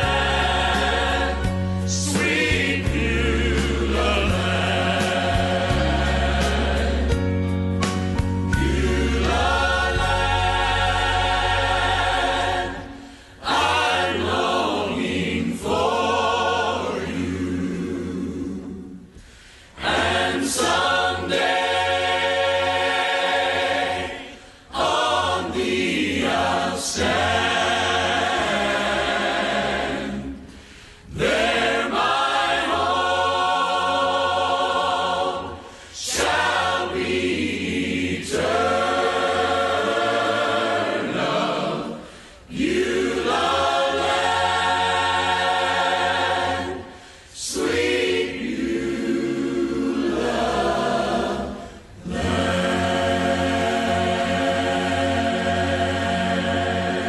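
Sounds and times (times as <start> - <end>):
choir singing: 0.0 - 7.6, 8.2 - 57.0.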